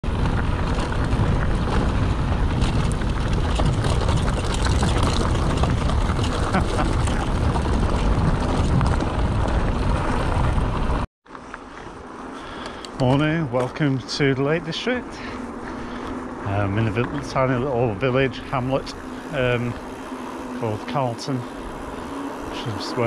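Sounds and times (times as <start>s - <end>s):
bike rattling and knocking: 0.0s - 11.1s, 15.2s - 23.0s
wind rumble on microphone: 0.0s - 11.1s.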